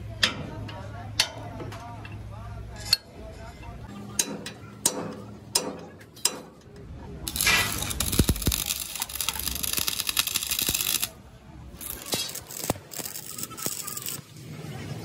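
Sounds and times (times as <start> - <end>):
welding arc crackling and sizzling: 7.3 - 11.2, 11.8 - 14.5.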